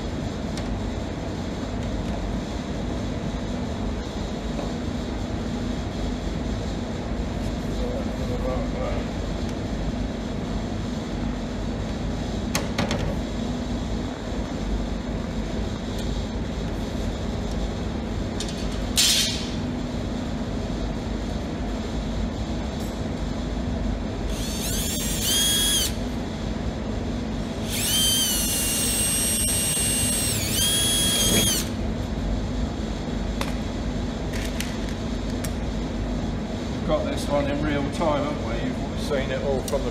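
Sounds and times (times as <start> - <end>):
low workshop hum: 0.0 - 39.9
cordless drill whining: 24.3 - 26.0, 27.6 - 31.7.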